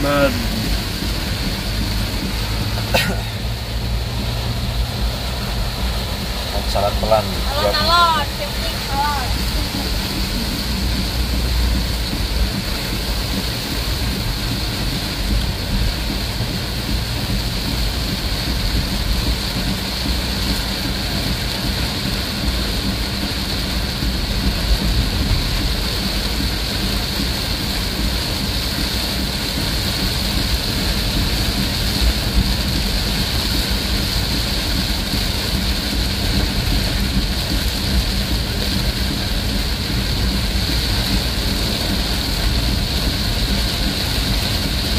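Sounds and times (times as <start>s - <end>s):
engine and tyre rumble: 0.0s - 44.9s
heavy rain on vehicle roof: 0.0s - 44.9s.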